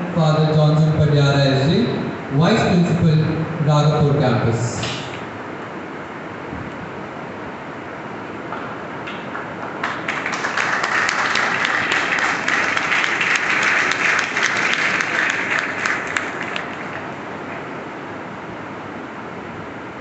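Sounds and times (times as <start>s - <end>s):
audience applauding: 9.3s - 17.7s.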